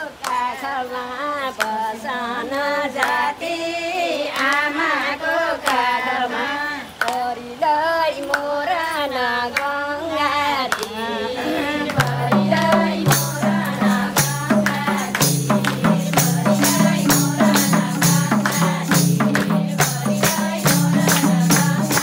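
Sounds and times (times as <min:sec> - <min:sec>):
women singing together: 0:00.0 - 0:22.0
claps keeping time: 0:07.0 - 0:07.3, 0:10.7 - 0:22.0.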